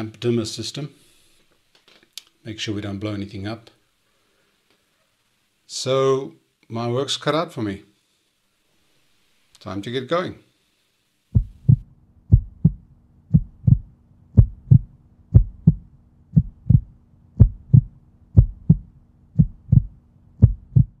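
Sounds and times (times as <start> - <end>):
low steady hum: 10.8 - 21.0
heartbeat thumps: 11.3 - 21.0.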